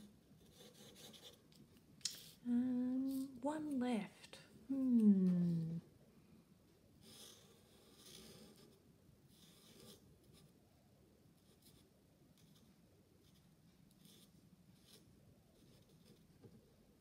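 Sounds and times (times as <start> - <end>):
marker pen scratching on paper: 0.0 - 1.4, 7.0 - 10.6, 11.4 - 16.8.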